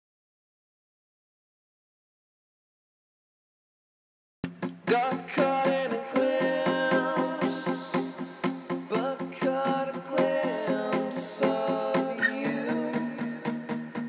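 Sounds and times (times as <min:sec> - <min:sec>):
acoustic guitar strumming: 0:04.4 - 0:14.0.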